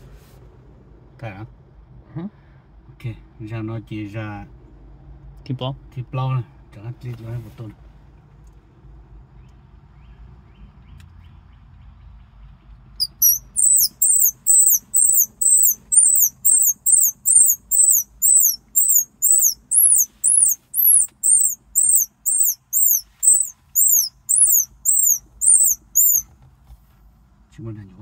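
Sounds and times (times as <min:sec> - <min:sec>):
squirrel call high-pitched chirps: 0:13.0 - 0:26.2.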